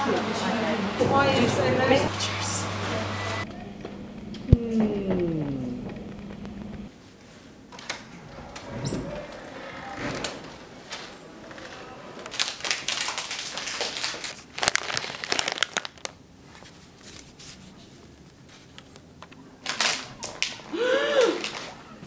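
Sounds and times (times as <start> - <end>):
plastic pouch crinkling: 12.2 - 16.3.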